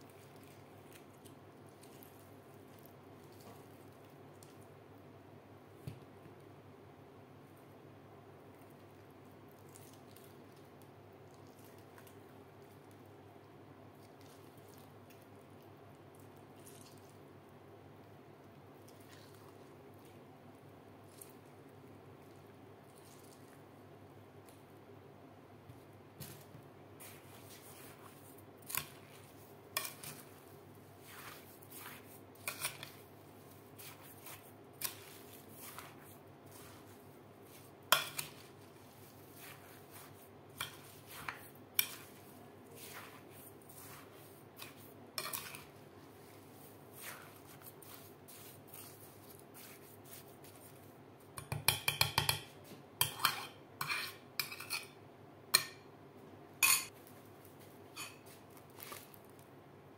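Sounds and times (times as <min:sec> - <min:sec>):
metal spoon clinking on glass bowl: 0:56.6 - 0:56.9.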